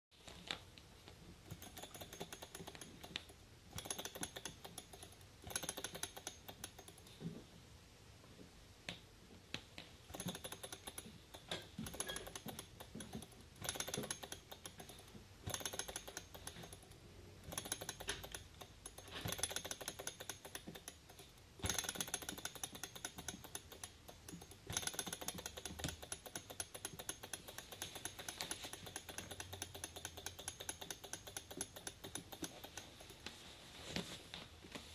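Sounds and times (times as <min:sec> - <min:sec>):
model engine clicking: 0:01.4 - 0:07.2, 0:10.1 - 0:33.3.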